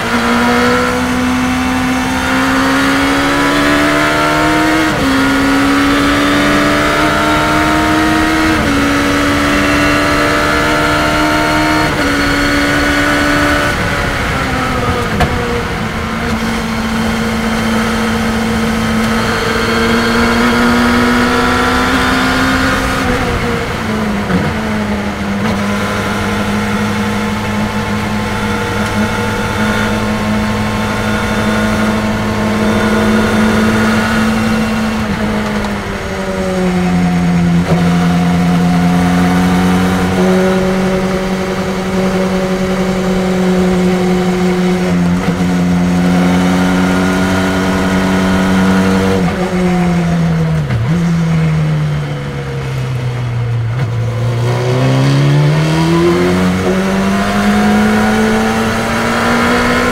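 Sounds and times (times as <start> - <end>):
race car engine: 0.0 - 59.9
wind and road noise: 0.0 - 59.9.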